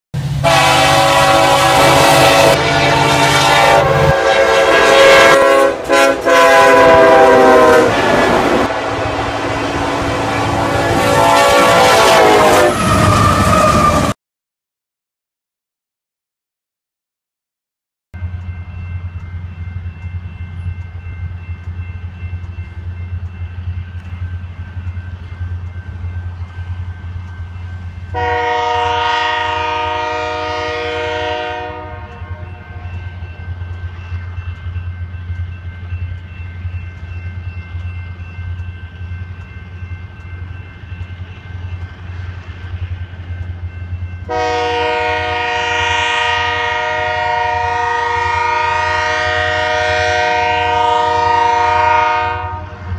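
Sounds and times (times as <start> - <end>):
train rumble: 0.2 - 14.2, 18.2 - 52.9
locomotive horn blasts: 0.3 - 14.2, 28.1 - 33.2, 44.2 - 52.9.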